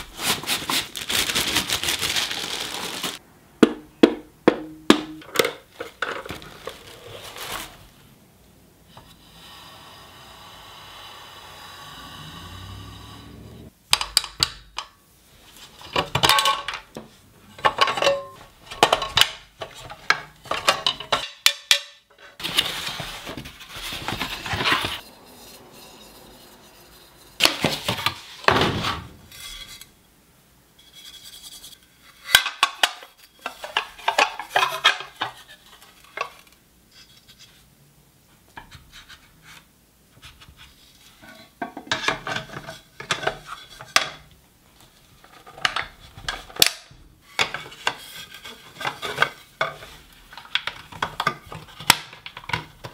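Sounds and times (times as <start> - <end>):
cardboard packaging rustling: 0.0 - 3.2, 5.6 - 8.1, 22.4 - 25.1
cooking plates clacking and scraping: 17.5 - 28.4, 30.9 - 36.4, 41.2 - 44.3, 45.3 - 52.9.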